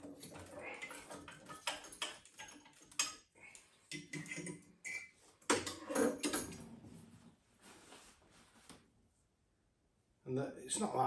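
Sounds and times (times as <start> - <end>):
clicks and knocks of burner parts: 0.0 - 3.3, 3.9 - 6.6.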